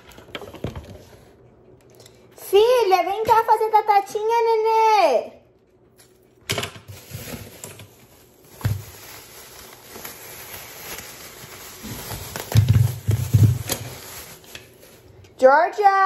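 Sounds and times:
plastic bag crinkling: 6.8 - 15.2.

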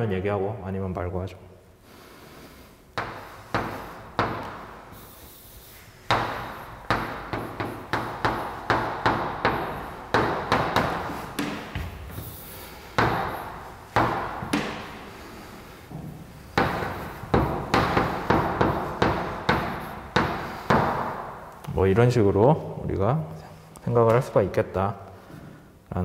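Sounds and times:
chalk scratching strokes: 3.0 - 21.1
chalk tapping on blackboard: 3.0 - 21.3.

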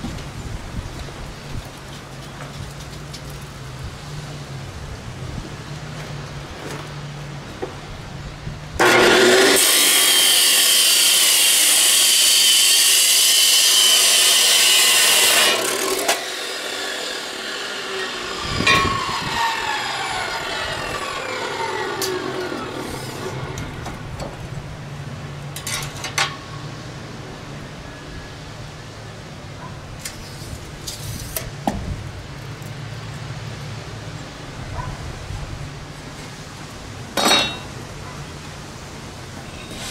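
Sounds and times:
chop saw grinding steel: 8.8 - 24.1, 39.4 - 39.9
motor winding down whine: 17.2 - 23.9.

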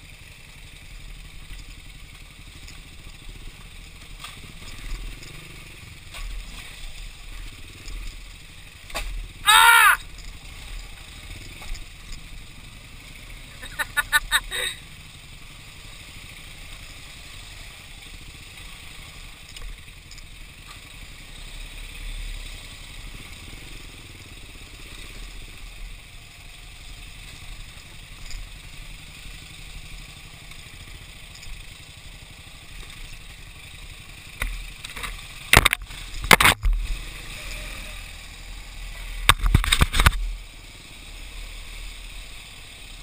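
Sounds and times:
motorcycle engine running: 0.0 - 43.0
bike rattling over rocks: 39.2 - 40.2.

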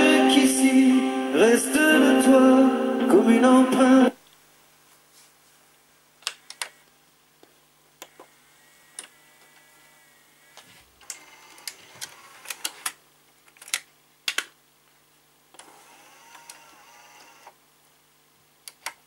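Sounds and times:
small motor whirring: 8.1 - 12.6.

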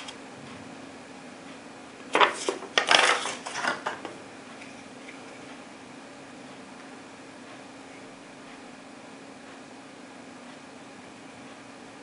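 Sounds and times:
paper and packaging rustling: 2.2 - 3.9.

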